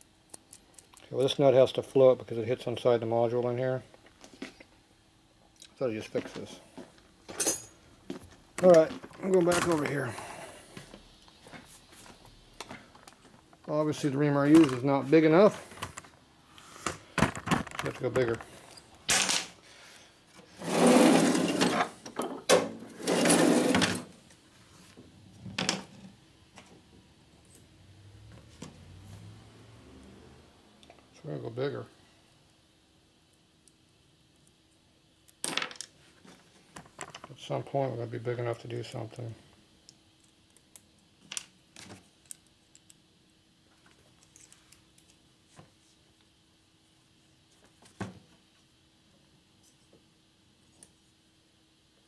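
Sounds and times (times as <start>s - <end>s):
faint steady hum: 0.0s - 52.0s
clinks of metal parts and tools: 7.3s - 7.8s.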